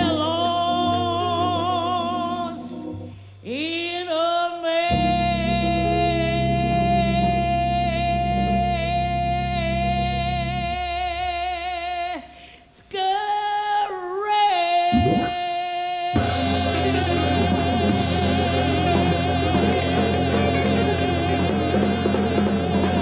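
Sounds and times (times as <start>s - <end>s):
organ trio playing: 0.0s - 3.7s
woman singing jazz with vibrato: 0.0s - 17.0s.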